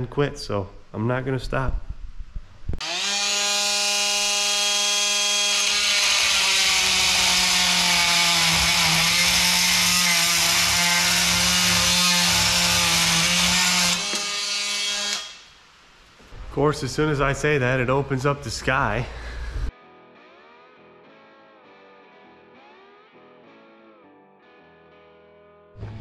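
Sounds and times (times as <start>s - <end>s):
rotary tool whining: 2.8s - 15.5s.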